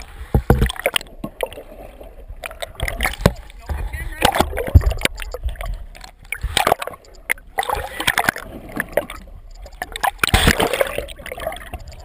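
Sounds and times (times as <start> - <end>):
water sloshing and gurgling: 0.0 - 12.0
sharp clicks and knocks: 2.4 - 10.6.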